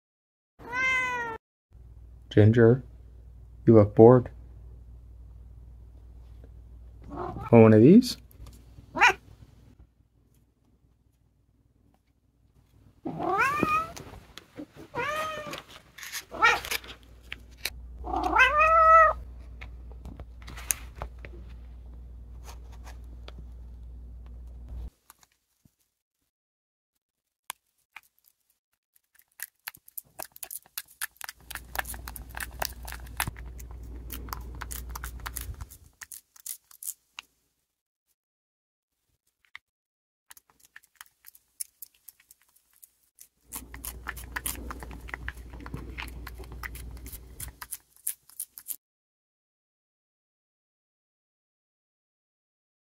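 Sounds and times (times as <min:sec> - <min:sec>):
cat meowing: 0:00.6 - 0:01.4, 0:07.1 - 0:07.5, 0:08.9 - 0:09.2, 0:13.1 - 0:14.0, 0:14.9 - 0:15.6, 0:16.3 - 0:16.6, 0:18.0 - 0:19.2.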